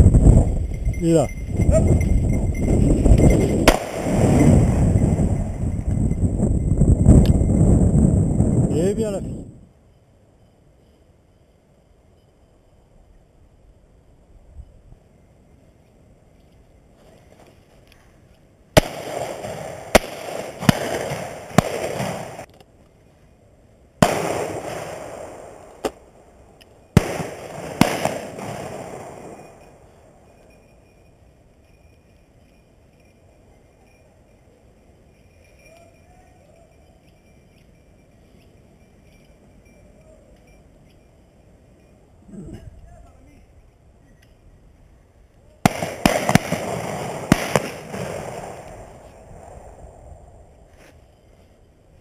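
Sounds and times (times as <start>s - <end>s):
shotgun shots: 3.6s - 5.0s, 18.8s - 22.5s, 24.0s - 26.1s, 27.0s - 29.7s, 45.7s - 49.8s.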